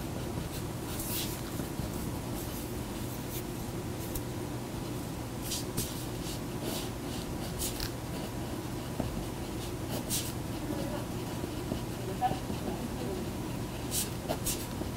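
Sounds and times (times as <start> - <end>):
steady low hum: 0.0 - 14.9
ballpoint pen scratching on paper: 5.5 - 14.9.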